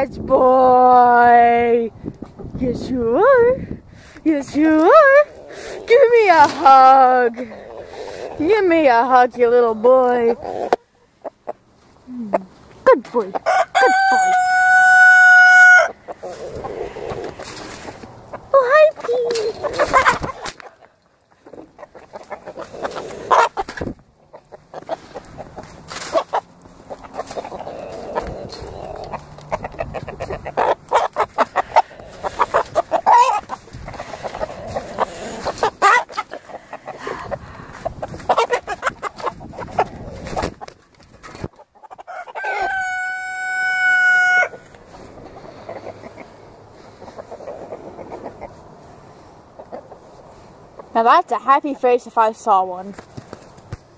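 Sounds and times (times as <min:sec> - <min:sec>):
chickens clucking: 0:04.3 - 0:51.4
rooster crowing: 0:13.4 - 0:16.0, 0:42.1 - 0:44.6.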